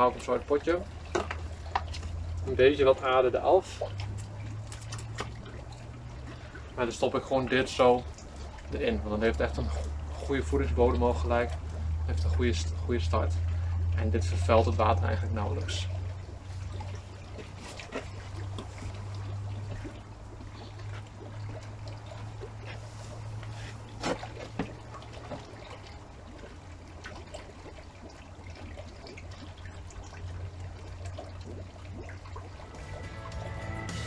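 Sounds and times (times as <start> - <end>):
steady low hum: 0.0 - 27.0
water dripping: 0.0 - 34.0.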